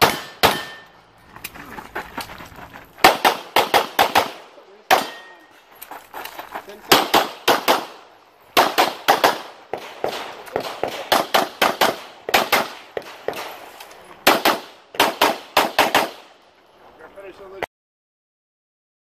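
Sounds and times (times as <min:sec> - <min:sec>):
rapid handgun shots: 0:00.0 - 0:00.8, 0:03.0 - 0:05.3, 0:06.9 - 0:13.6, 0:14.2 - 0:16.3.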